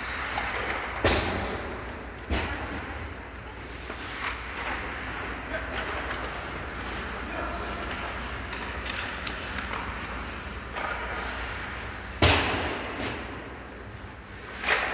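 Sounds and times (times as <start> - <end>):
hiss of skates on ice: 0.0 - 1.0
hockey sticks clacking: 0.0 - 14.9.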